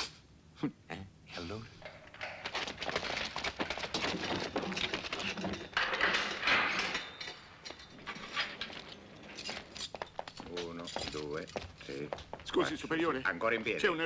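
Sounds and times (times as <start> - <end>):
shuffling and rustling: 1.7 - 13.9
scattered knocks: 1.8 - 7.8.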